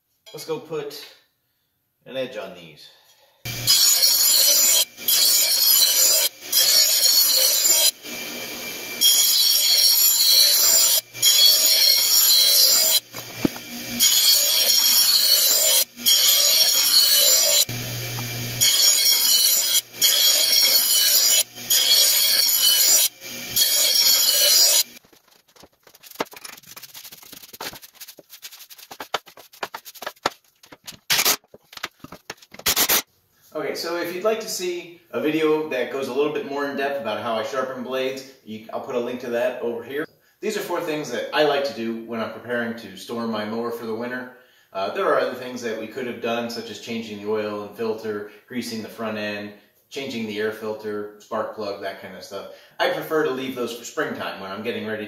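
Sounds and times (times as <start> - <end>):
bench grinder grinding steel: 3.5 - 25.0.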